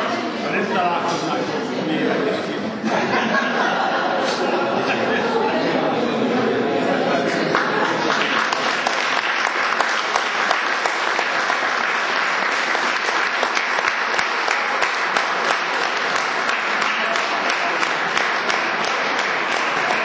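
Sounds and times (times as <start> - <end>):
crowd applauding: 7.0 - 20.0.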